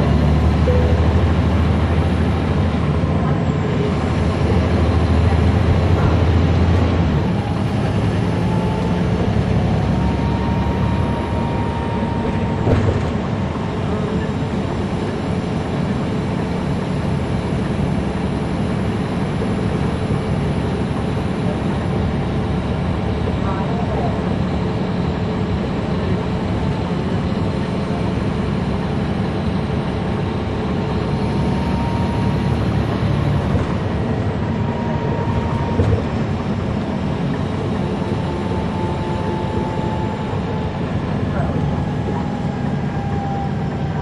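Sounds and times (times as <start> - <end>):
bus diesel engine running: 0.0 - 44.0
thump: 12.6 - 13.2.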